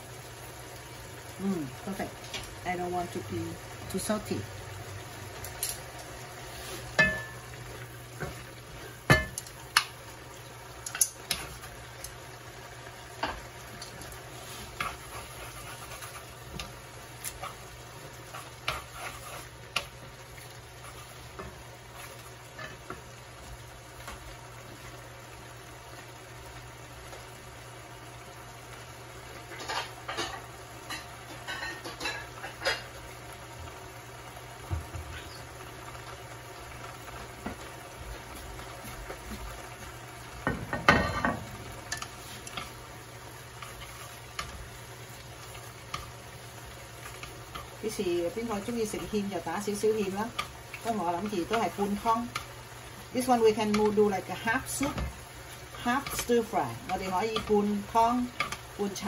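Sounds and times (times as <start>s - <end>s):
stir-fry sizzling in a pan: 0.0s - 59.0s
utensils clicking against pan: 10.8s - 12.2s, 41.9s - 42.8s, 43.6s - 44.6s, 47.0s - 52.6s, 53.2s - 59.0s.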